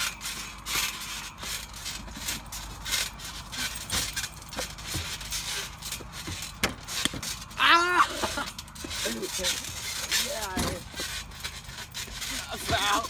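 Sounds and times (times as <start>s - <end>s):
trampoline mat and springs creaking: 0.0s - 13.0s
dull thumps: 1.4s - 7.6s.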